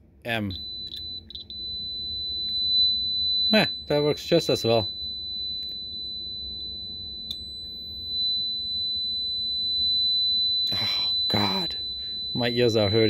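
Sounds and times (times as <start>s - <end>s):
piezo speaker high tone: 0.3s - 13.0s.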